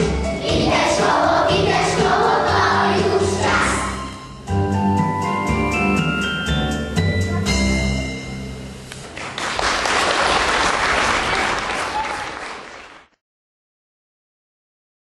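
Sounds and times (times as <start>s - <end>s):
instrumental music: 0.0s - 9.1s
audience applauding: 9.1s - 13.2s.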